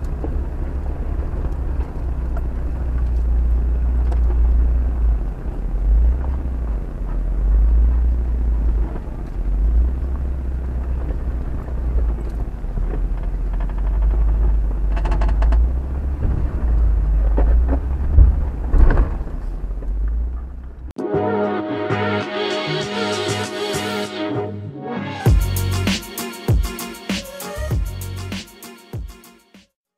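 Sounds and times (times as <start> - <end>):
vehicle engine rumbling: 0.0 - 21.0
knocks and rattles: 12.0 - 19.5
music: 21.0 - 29.7.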